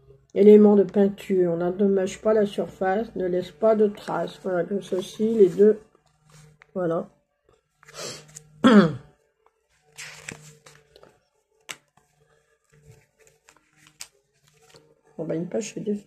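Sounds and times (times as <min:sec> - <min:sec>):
paper pages rustling: 0:04.0 - 0:06.8, 0:09.6 - 0:15.0.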